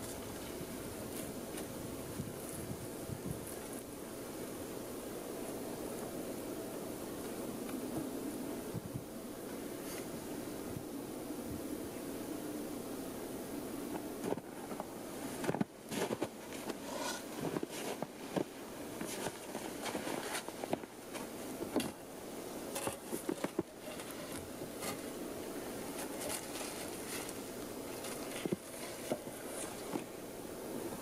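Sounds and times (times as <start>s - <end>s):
footsteps in snow: 15.9s - 21.7s, 25.9s - 30.0s.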